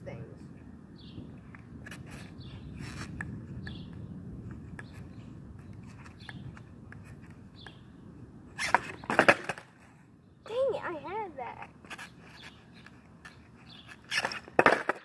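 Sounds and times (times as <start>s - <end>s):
skateboard rolling on asphalt: 0.5s - 15.0s
skateboard clacking on pavement: 1.6s - 7.8s, 8.6s - 9.8s, 11.5s - 15.0s.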